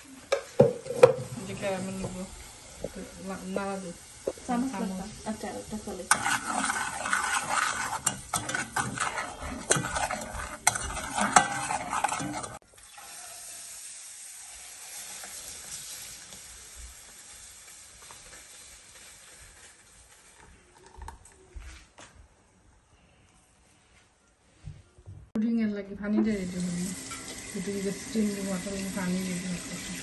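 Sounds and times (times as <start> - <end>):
caramel sizzling in pan: 0.0 - 20.7, 26.3 - 30.0
metal utensil scraping pan: 2.8 - 13.2.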